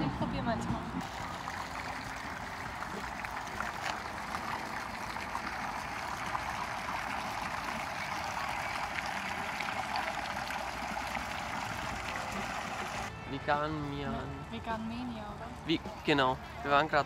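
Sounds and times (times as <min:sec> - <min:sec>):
fountain water splashing: 0:01.0 - 0:13.1.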